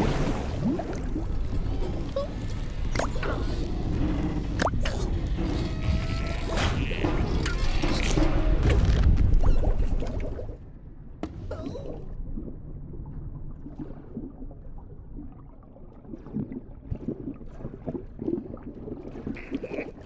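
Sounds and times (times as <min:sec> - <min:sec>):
muffled underwater bubbling: 0:11.5 - 0:20.0.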